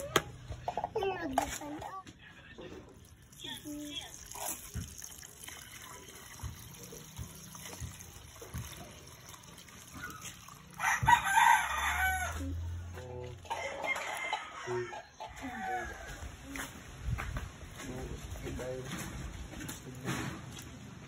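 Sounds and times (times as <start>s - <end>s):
rooster crowing: 10.7s - 12.6s, 13.5s - 16.4s.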